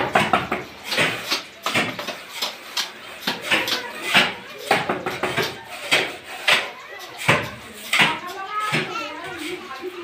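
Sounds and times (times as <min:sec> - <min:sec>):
trowel scraping sand and cement: 0:00.6 - 0:10.0.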